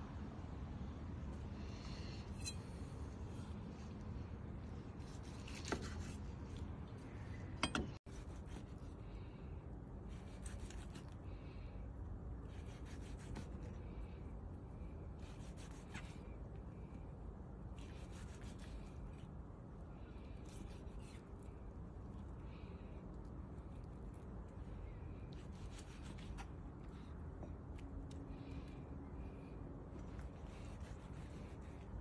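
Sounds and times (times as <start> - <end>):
knife slicing steak: 5.0 - 6.2, 12.4 - 13.4, 25.3 - 26.5.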